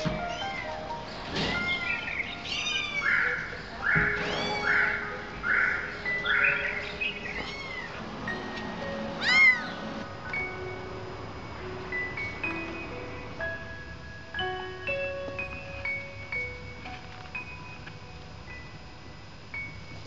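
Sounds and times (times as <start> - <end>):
soft background music: 0.0 - 20.0
kittens mewing: 1.5 - 5.9, 7.3 - 8.1, 9.2 - 10.0.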